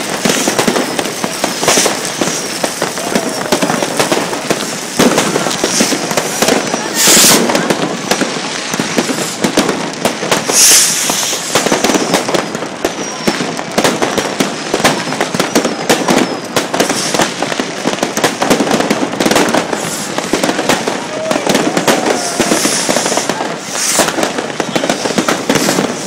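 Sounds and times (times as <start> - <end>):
fireworks bangs and crackling: 0.0 - 26.0
high firework whistles: 0.0 - 26.0.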